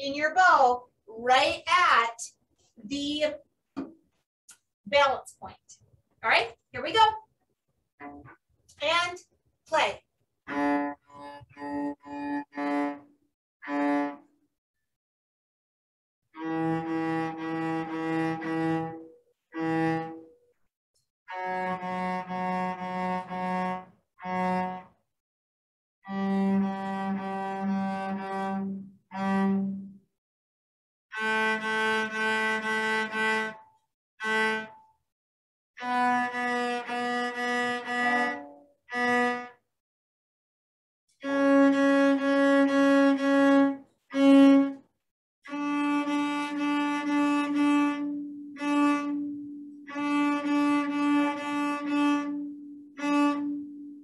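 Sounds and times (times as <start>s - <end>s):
cello playing a scale: 8.0s - 8.4s, 10.4s - 14.3s, 16.4s - 20.4s, 21.3s - 25.0s, 26.0s - 30.0s, 31.1s - 34.9s, 35.8s - 39.6s, 41.2s - 44.8s, 45.5s - 54.0s.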